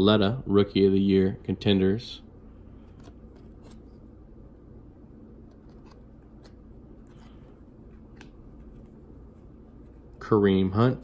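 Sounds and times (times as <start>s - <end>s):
low room hum: 0.0s - 11.0s
trading cards clicking and sliding: 2.8s - 4.1s, 5.4s - 10.2s.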